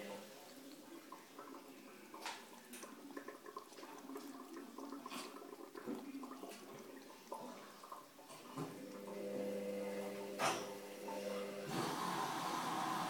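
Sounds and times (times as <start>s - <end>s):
small water splashes: 0.0s - 9.2s
cat lapping water: 0.0s - 10.3s.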